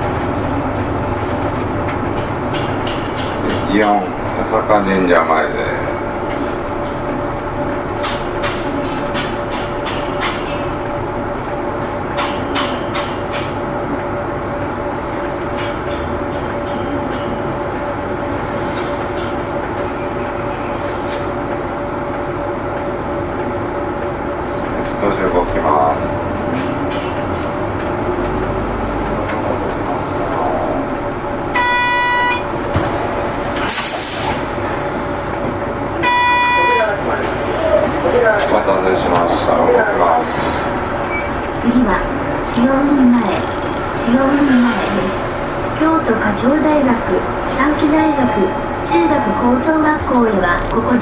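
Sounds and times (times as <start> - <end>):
bus engine humming: 0.0 - 51.0
bus horn: 31.5 - 32.6, 36.0 - 37.0.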